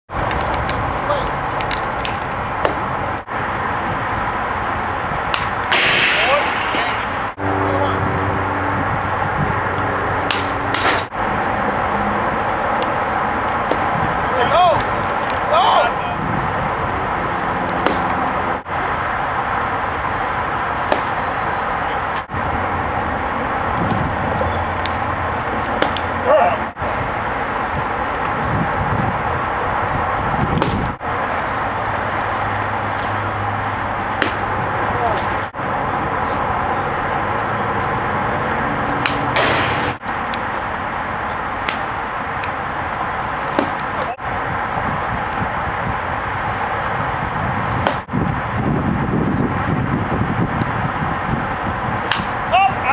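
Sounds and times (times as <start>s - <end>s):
steady outdoor noise: 0.1s - 52.9s
baseball smacking into mitt: 1.6s - 2.9s, 13.6s - 13.9s, 17.8s - 18.1s, 20.8s - 21.2s, 25.7s - 26.1s, 30.5s - 30.9s, 34.2s - 34.5s, 41.6s - 41.9s, 43.5s - 44.0s, 52.0s - 52.4s.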